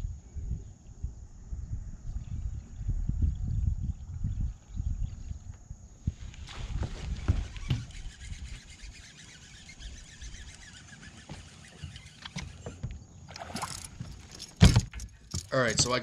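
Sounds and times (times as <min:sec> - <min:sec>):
wind buffeting microphone: 0:00.0 - 0:09.0
water lapping at boat hull: 0:06.6 - 0:14.6.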